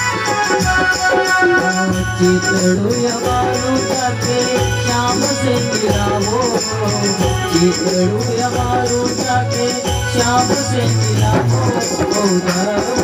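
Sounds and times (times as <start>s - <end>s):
electronic keyboard melody: 0.0s - 13.0s
harmonium: 0.0s - 13.0s
struck drum beat: 0.0s - 13.0s.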